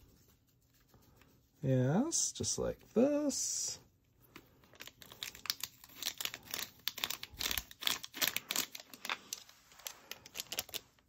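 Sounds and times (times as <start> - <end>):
foil sachet crinkling: 4.7 - 11.0.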